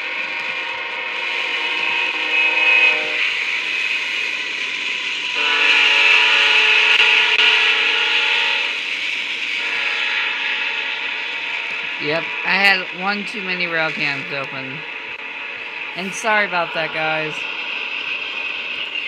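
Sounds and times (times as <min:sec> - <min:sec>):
locomotive horn blasts: 0:01.1 - 0:03.4, 0:05.4 - 0:08.8, 0:09.6 - 0:11.0.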